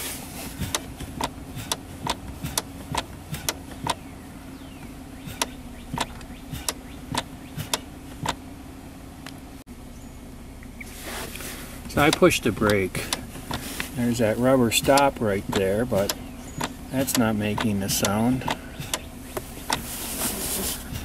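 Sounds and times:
car engine idling: 0:00.0 - 0:21.0
gear shifter lock clicking: 0:00.6 - 0:04.0, 0:05.3 - 0:08.4, 0:11.9 - 0:19.9.

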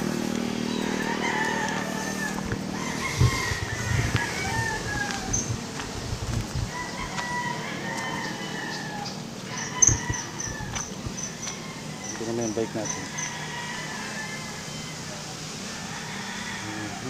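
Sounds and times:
footsteps on rough ground: 0:00.0 - 0:08.2, 0:09.0 - 0:12.4
roosters crowing: 0:00.0 - 0:17.0.

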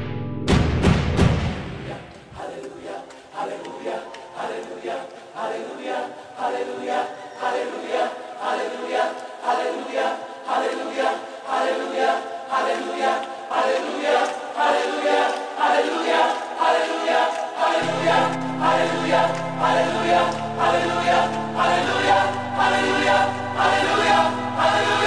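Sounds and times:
choir singing: 0:01.6 - 0:25.0.

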